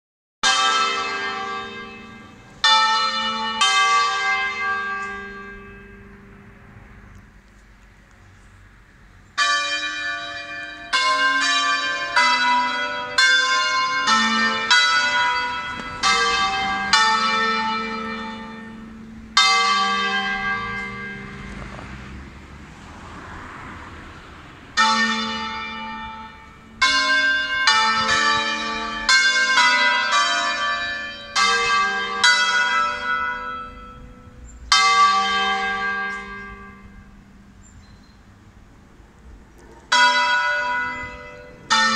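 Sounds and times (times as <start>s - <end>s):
church bells ringing: 0.4s - 7.4s, 9.3s - 22.4s, 24.7s - 41.9s.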